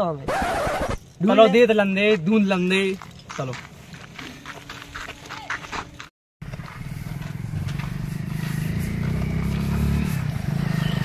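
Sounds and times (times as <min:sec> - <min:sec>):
motorcycle engine running: 0:06.4 - 0:11.0.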